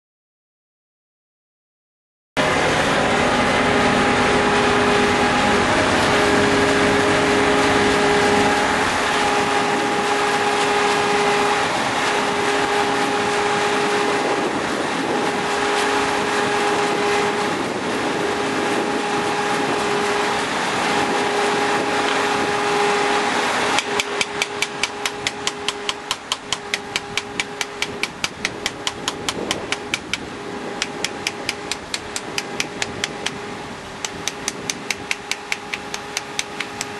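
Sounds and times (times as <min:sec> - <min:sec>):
machine humming: 0:02.4 - 0:36.9
fast regular knocking: 0:23.8 - 0:33.4, 0:34.0 - 0:36.9.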